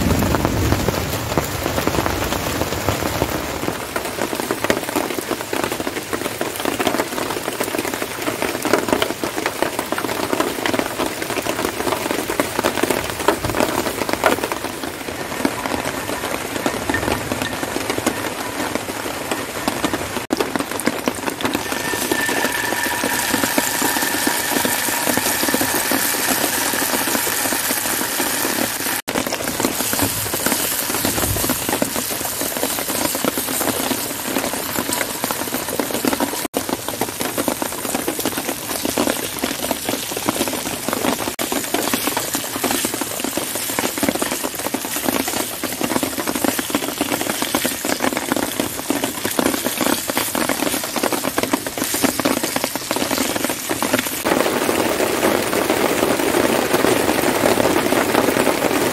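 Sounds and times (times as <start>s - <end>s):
rain pattering: 0.0s - 58.9s
meat sizzling in a skillet: 21.4s - 29.1s, 29.8s - 34.1s
camping stove burner hissing: 21.5s - 29.0s
faint high tone: 21.6s - 28.9s.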